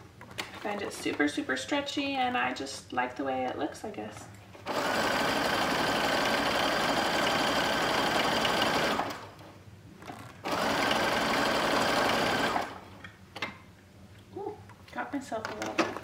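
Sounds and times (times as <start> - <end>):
sewing machine running: 4.6 - 9.3, 10.4 - 12.8.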